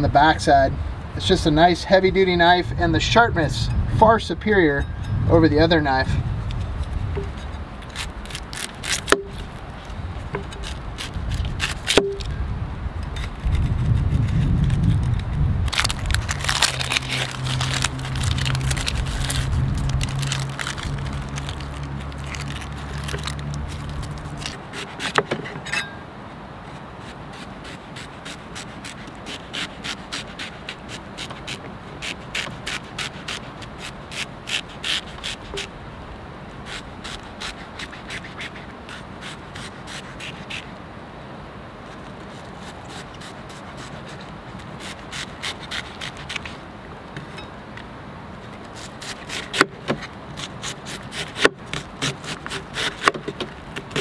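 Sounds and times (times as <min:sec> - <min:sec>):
low rumble and hum: 0:02.4 - 0:24.7
onion skin crackling: 0:06.4 - 0:12.3, 0:13.1 - 0:25.2, 0:27.6 - 0:35.7.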